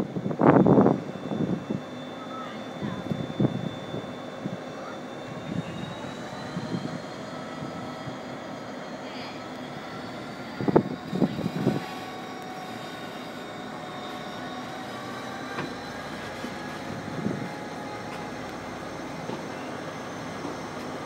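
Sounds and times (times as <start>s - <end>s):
train running along the line: 0.0s - 21.0s
wind on microphone: 10.6s - 12.0s, 16.8s - 17.6s.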